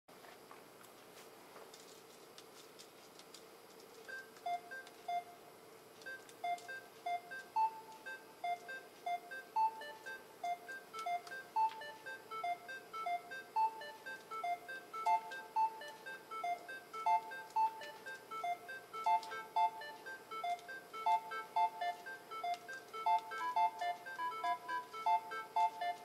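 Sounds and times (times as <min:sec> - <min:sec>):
looping electronic bleeps: 0:06.4 - 0:26.0.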